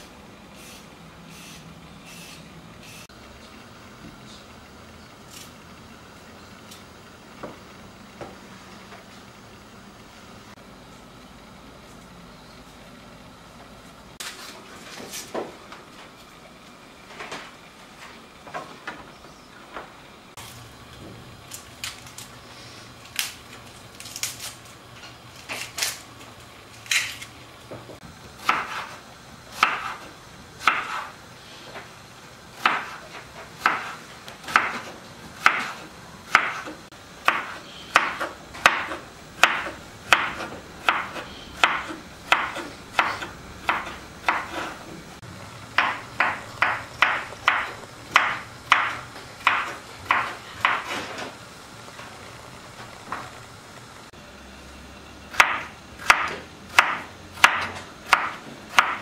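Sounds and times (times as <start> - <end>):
knife chopping on wooden board: 28.4 - 31.1, 32.6 - 44.8, 45.8 - 51.2, 55.3 - 59.0.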